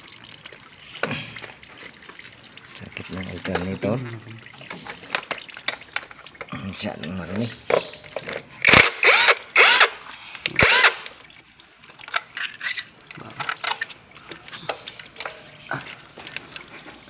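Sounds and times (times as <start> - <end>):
person talking: 2.8 - 4.5.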